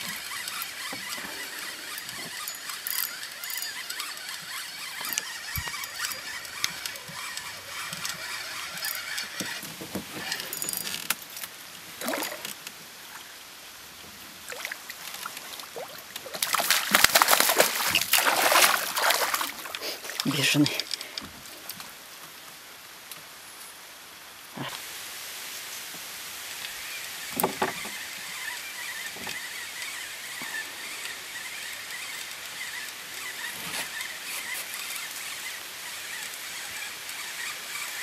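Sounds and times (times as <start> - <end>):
fish splashing in water: 15.8 - 20.2
steady hiss: 22.1 - 28.2.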